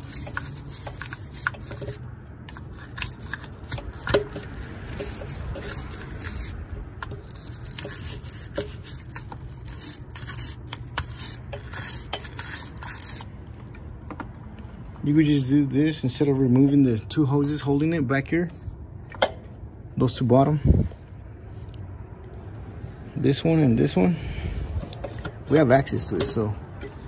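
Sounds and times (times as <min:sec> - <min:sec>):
wire brush scraping metal: 0:00.0 - 0:13.3.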